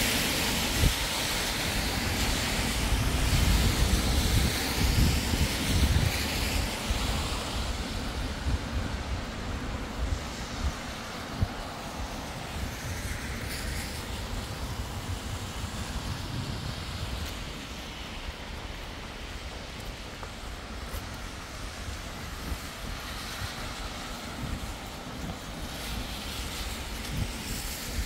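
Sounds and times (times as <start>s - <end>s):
heavy rain: 0.0s - 28.0s
vehicle passing on wet street: 0.0s - 28.0s.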